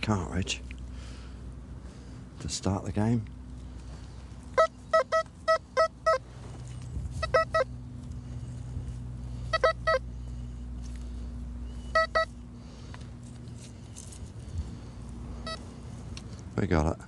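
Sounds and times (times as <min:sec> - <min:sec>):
metal detector short beeps: 0:04.6 - 0:06.2, 0:07.2 - 0:07.7, 0:09.5 - 0:10.0, 0:11.8 - 0:12.4, 0:15.4 - 0:15.6.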